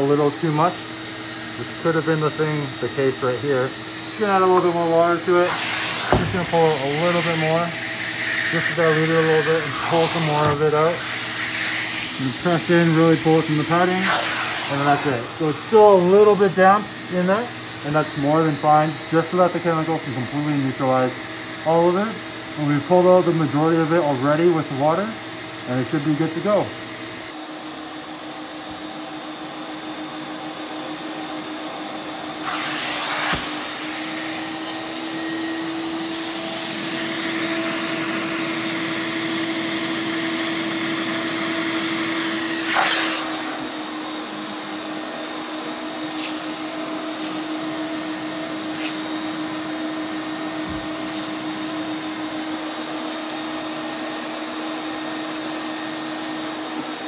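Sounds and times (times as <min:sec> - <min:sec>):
vacuum motor humming: 0:00.0 - 0:57.0
water rushing through suction tool: 0:00.2 - 0:18.2, 0:32.4 - 0:43.7.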